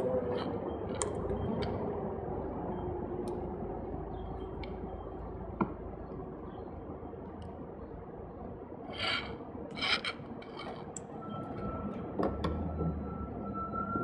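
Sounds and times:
plastic rubbing scrapes: 8.9s - 10.9s.

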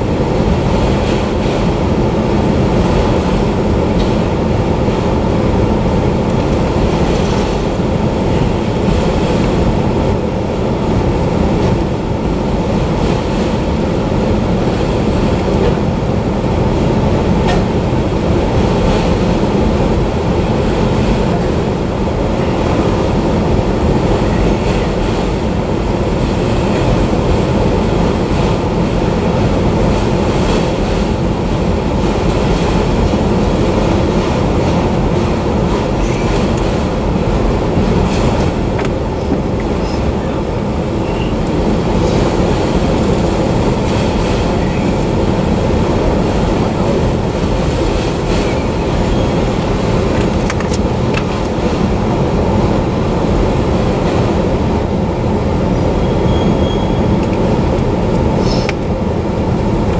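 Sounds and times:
steel wheels rumbling on rail: 0.0s - 59.9s
freight car clanks: 17.4s - 17.8s.

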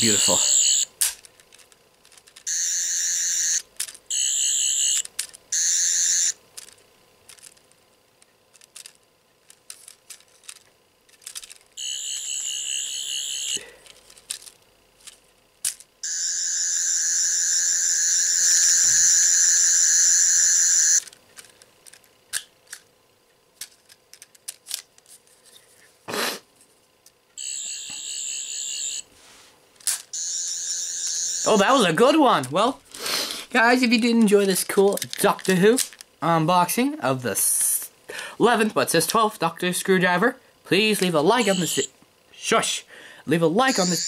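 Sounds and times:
warbling electronic toy sound: 11.8s - 13.6s, 16.0s - 21.0s, 30.2s - 32.0s, 41.3s - 41.9s, 43.6s - 44.0s.

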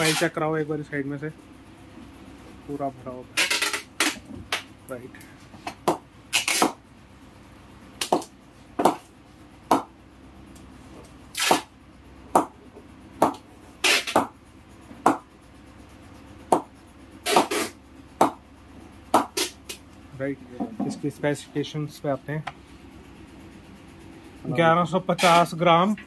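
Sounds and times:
cricket ball knocking on bat: 9.7s - 9.9s, 12.3s - 12.6s, 16.5s - 16.7s, 18.2s - 18.4s, 19.2s - 19.4s.

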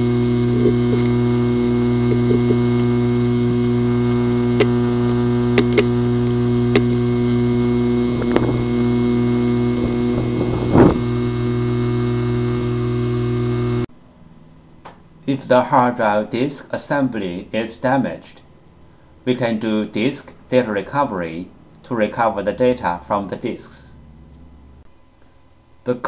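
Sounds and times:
hard disk drive hum: 0.0s - 15.2s
hard disk sharp clicks: 0.2s - 8.7s.

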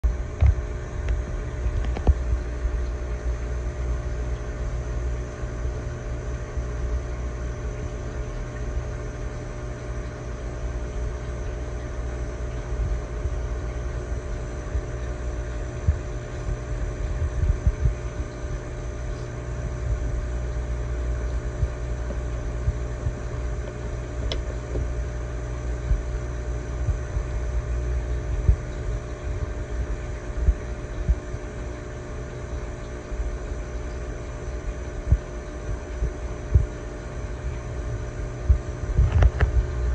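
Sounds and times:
aquarium pump humming: 0.0s - 39.9s.

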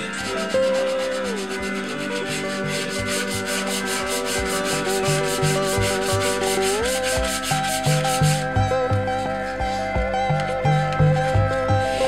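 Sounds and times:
sandpaper rubbing metal: 0.0s - 8.6s.

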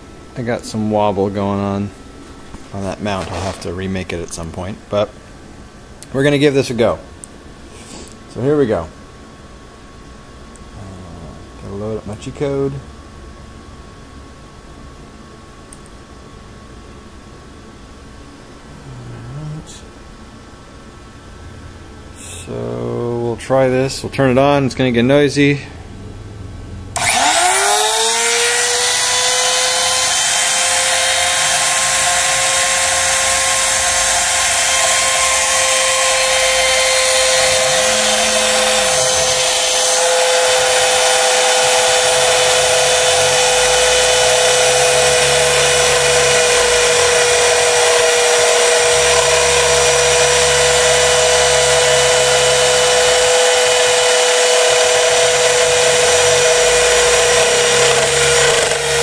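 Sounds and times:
low machine hum: 0.0s - 59.0s
router spindle high whine: 2.7s - 4.8s, 26.9s - 59.0s.

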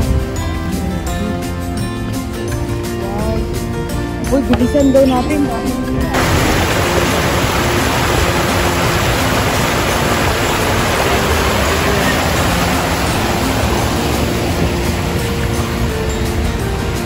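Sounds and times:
water rushing over cascade: 6.1s - 17.0s.

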